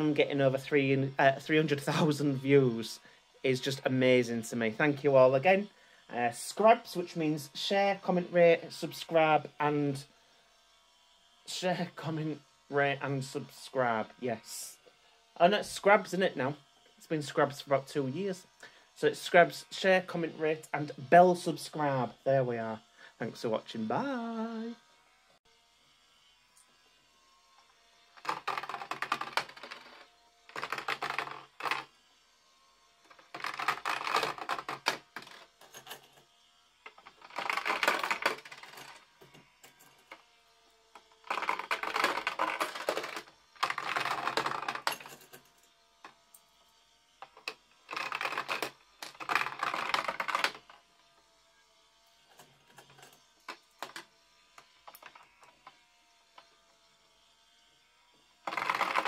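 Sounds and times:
coins clattering through pegs: 0:41.4 - 0:45.5.

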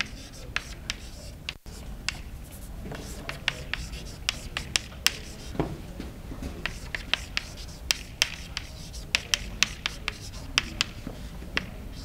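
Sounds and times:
chalk tapping and scratching on blackboard: 0:00.0 - 0:05.8, 0:06.4 - 0:12.0.

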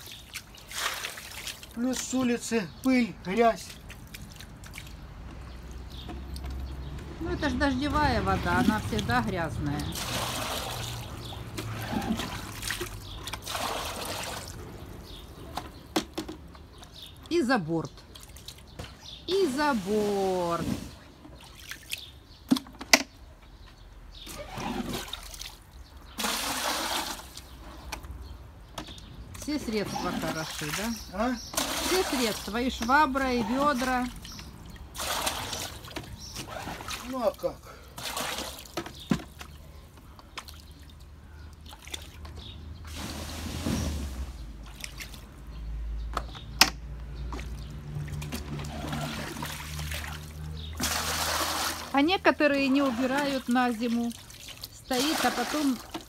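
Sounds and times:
water sloshing and pouring: 0:00.0 - 0:02.5, 0:03.4 - 0:06.8, 0:08.0 - 0:22.7, 0:24.2 - 0:28.2, 0:28.8 - 0:45.6, 0:47.2 - 0:56.0
splashing scrape of bucket: 0:09.8 - 0:15.8, 0:19.5 - 0:21.8, 0:24.2 - 0:27.9, 0:29.8 - 0:37.1, 0:38.0 - 0:39.4, 0:42.8 - 0:45.2, 0:47.3 - 0:51.9
buckets knocking: 0:15.5 - 0:16.9
plastic bucket knocks: 0:15.9 - 0:16.5.

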